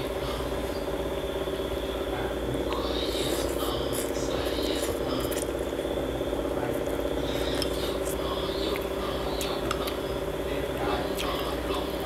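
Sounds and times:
buzzing hum: 0.0s - 12.0s
person slurping and chewing: 2.7s - 5.6s.

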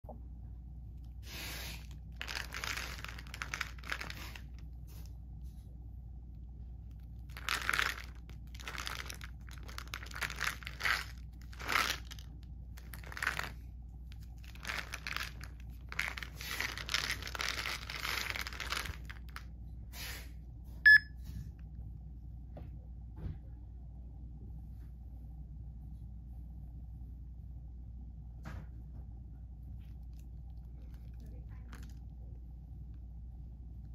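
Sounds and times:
plastic bottle rustling: 1.3s - 5.1s, 7.2s - 13.6s, 14.2s - 19.4s, 30.7s - 32.0s
phone scanner beep: 20.9s - 21.2s.

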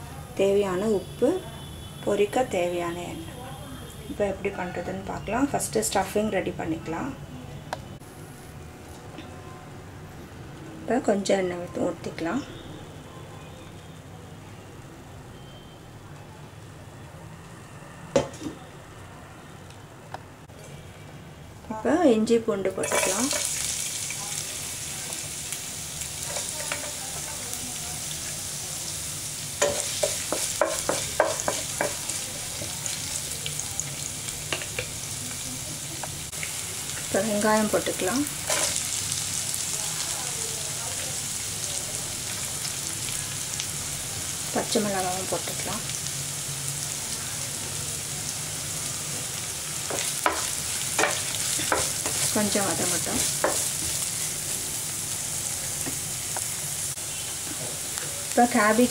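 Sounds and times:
ginger and garlic sizzling in oil: 0.0s - 7.2s, 21.7s - 58.9s
stirring scrapes and taps on pan: 29.6s - 32.1s, 49.9s - 52.3s, 53.2s - 54.0s.

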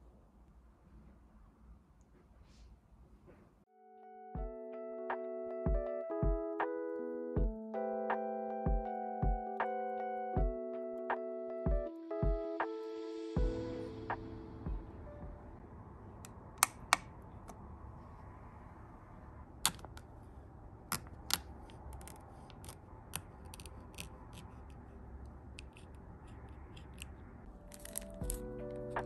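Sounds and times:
background music: 3.8s - 15.6s, 27.5s - 29.0s.

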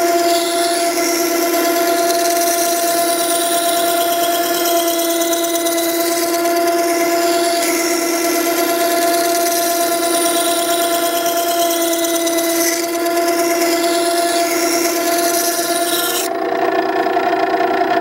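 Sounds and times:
steel grinding on stone: 0.0s - 16.3s
grinder motor hum: 0.0s - 18.0s.

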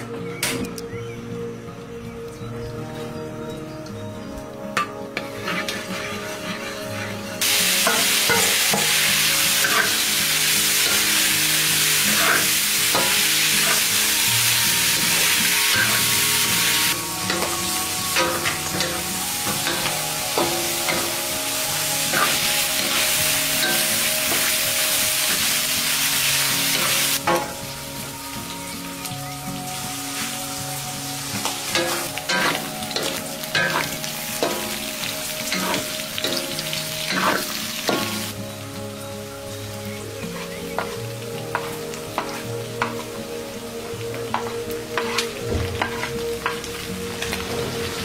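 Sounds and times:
spatula scraping a wok: 5.2s - 11.2s, 12.0s - 14.2s, 35.5s - 36.5s, 37.1s - 38.2s, 44.3s - 46.6s
food sizzling in hot oil: 5.2s - 48.0s.

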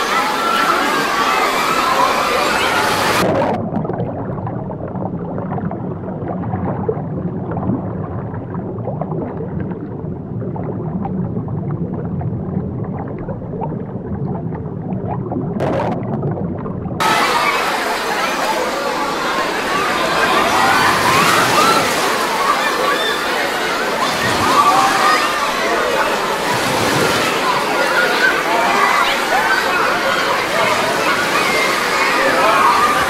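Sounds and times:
underwater churning rumble: 0.0s - 33.0s
water sloshing: 3.2s - 33.0s
bathers' voices: 17.0s - 33.0s.

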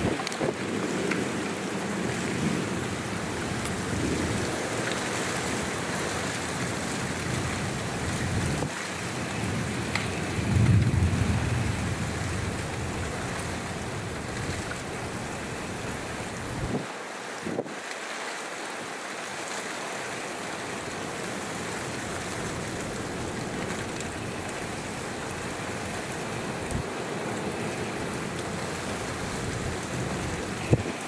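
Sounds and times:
distant thunder rumble: 0.0s - 16.8s
rain and wind hiss: 0.0s - 31.0s.

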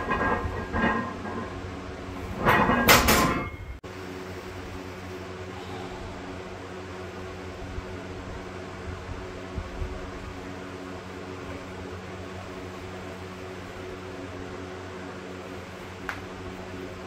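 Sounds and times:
loud clatter: 0.0s - 3.8s
steady low hum: 0.0s - 17.0s.

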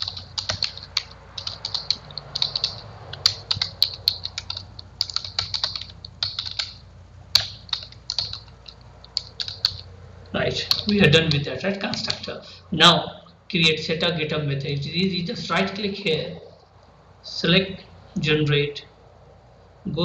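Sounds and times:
computer keyboard typing: 0.0s - 12.5s.

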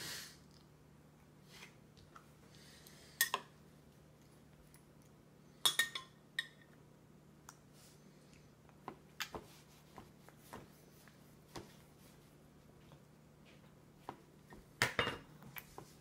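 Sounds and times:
metal spoon clinking on glass: 5.6s - 6.6s.

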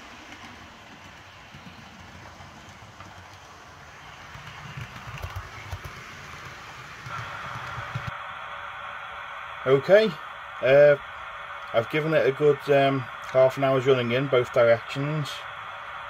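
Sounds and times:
wheels rumbling on track: 0.0s - 8.1s
diesel engine sound from model train: 0.0s - 16.0s.

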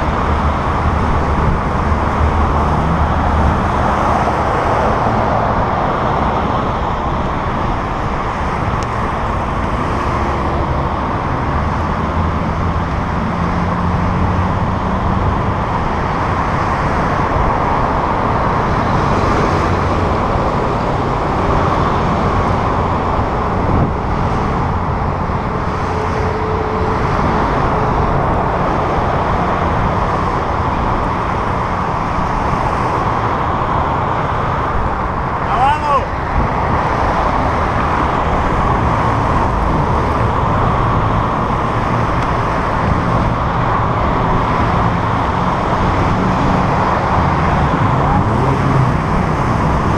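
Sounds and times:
wind noise on microphone: 0.0s - 35.4s
passing car traffic rush: 0.0s - 49.9s
passing vehicle engine hum: 0.0s - 49.9s.

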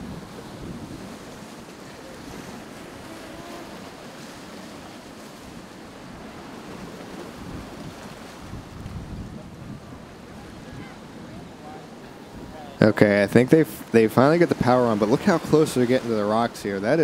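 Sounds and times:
wind rumbling on microphone: 0.0s - 13.0s
ocean surf washing in: 0.0s - 17.0s.

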